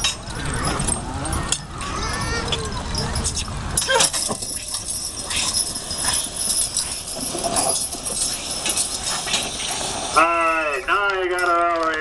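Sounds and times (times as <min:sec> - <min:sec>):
chains clinking and jangling: 0:00.0 - 0:10.2.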